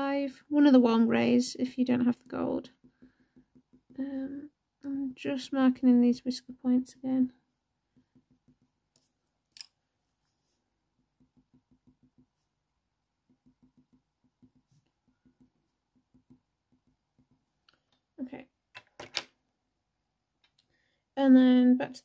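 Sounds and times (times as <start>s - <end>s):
pencil ticking on paper: 2.1s - 4.0s, 7.8s - 9.3s, 10.8s - 17.8s.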